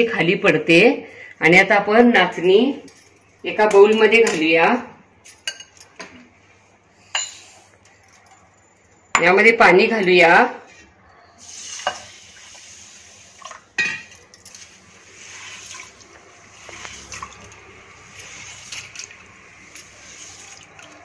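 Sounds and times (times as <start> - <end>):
water poured into a bowl: 11.4 - 13.8, 14.4 - 21.0
grain swished in water by hand: 14.8 - 17.4.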